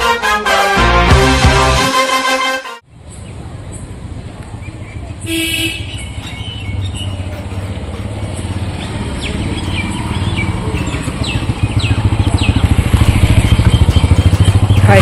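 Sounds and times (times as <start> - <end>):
vehicle engine running: 6.4 - 15.0.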